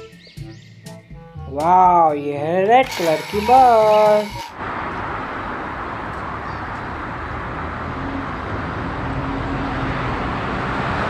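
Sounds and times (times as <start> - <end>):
traffic noise: 2.8 - 11.0.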